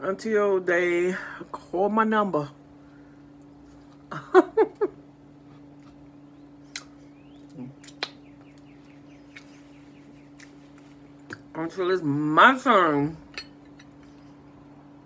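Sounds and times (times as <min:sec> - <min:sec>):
wet lip smacks and clicks: 0:06.6 - 0:08.7, 0:09.3 - 0:09.6, 0:10.4 - 0:11.5.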